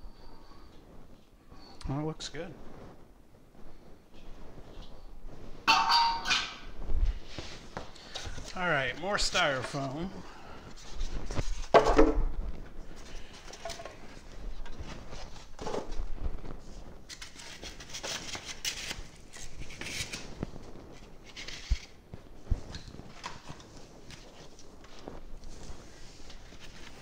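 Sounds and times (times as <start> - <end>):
cardboard and styrofoam scraping: 12.9 - 22.0.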